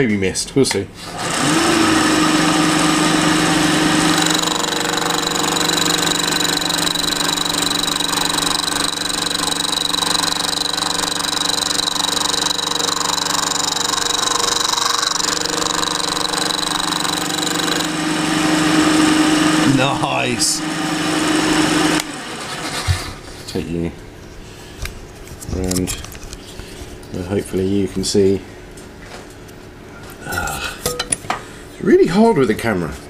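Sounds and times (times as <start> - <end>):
end mill cutting metal: 1.1 - 22.6
milling machine hum and whine: 1.1 - 22.7.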